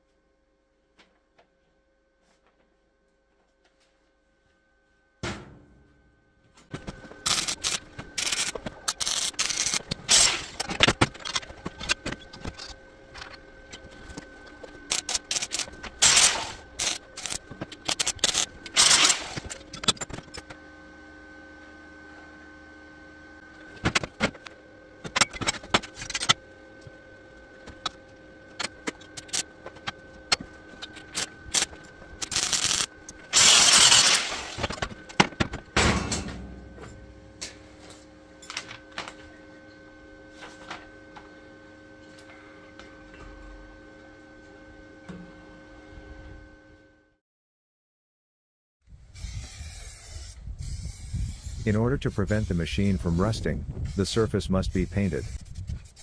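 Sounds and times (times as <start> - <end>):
arc welding crackling: 6.7 - 20.5, 27.3 - 34.8.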